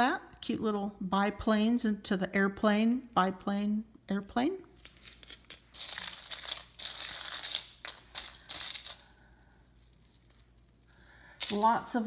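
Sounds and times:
metal jewelry clinking: 4.8 - 12.0.

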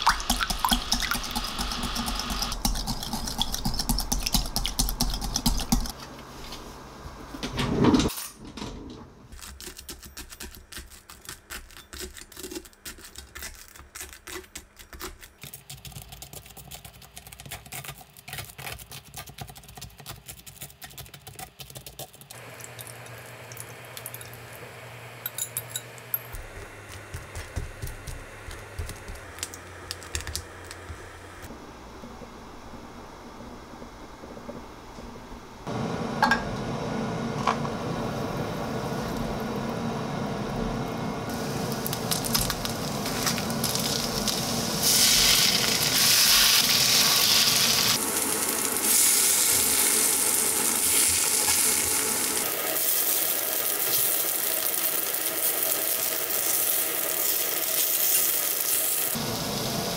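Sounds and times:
egg whisked in glass bowl: 0.0 - 6.0.

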